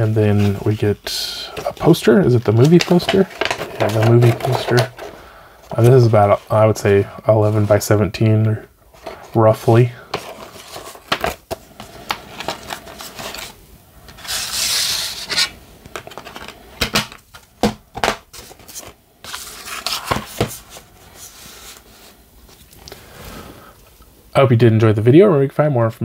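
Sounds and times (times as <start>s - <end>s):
paper poster rustling: 0.0s - 16.6s, 17.2s - 22.7s.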